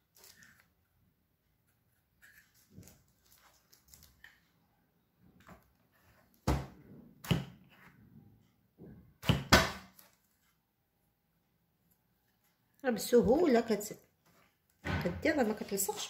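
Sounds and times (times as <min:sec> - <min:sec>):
faint rustling and handling: 0:00.0 - 0:04.6, 0:09.9 - 0:10.8, 0:11.8 - 0:14.8
plastic cookie stamp thunks: 0:09.2 - 0:09.9.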